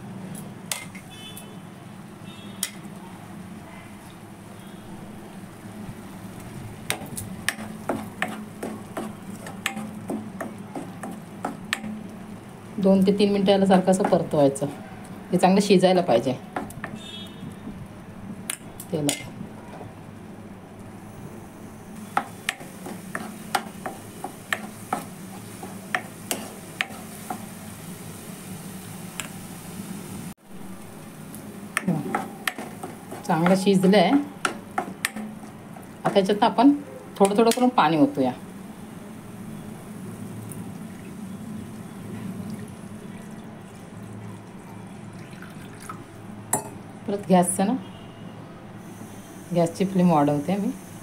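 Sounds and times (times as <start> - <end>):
paste frying: 2.2 - 17.6, 20.8 - 46.8
spatula scraping a pan: 22.8 - 23.7
water pouring into frying pan: 40.8 - 46.2.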